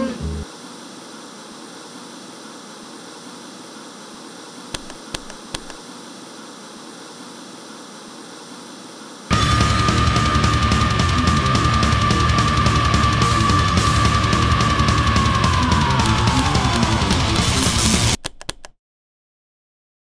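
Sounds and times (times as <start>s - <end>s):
television static hiss: 0.0s - 9.3s
short clicks: 4.7s - 5.8s
loud heavy music: 9.3s - 18.2s.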